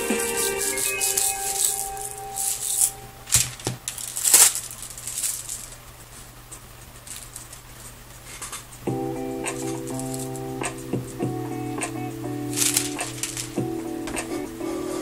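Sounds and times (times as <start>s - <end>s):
background music: 0.0s - 3.3s, 8.9s - 15.0s
crinkling and rustling handling noises: 0.0s - 8.8s, 12.5s - 13.6s.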